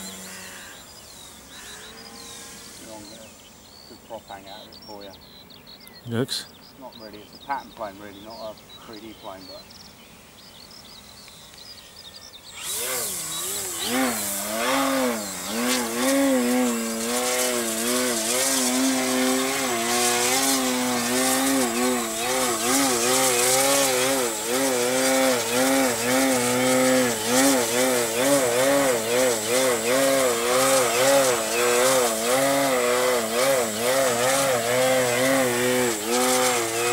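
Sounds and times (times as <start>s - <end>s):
model plane motor and propeller: 0.0s - 3.5s, 12.3s - 36.9s.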